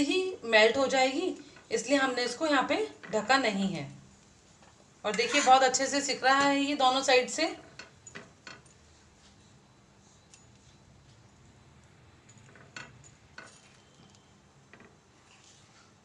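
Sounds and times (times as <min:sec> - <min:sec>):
low steady hiss: 0:00.0 - 0:16.0.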